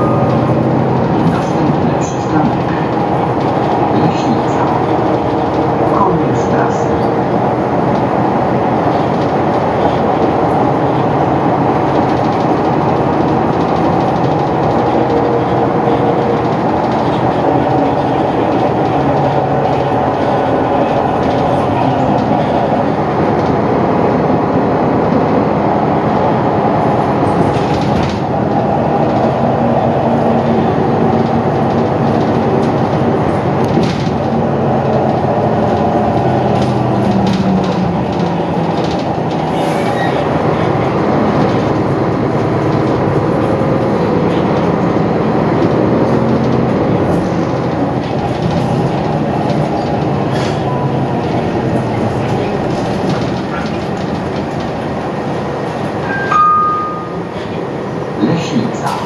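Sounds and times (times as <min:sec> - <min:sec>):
bus engine running: 0:00.0 - 0:59.0
road and tyre noise: 0:00.0 - 0:59.0.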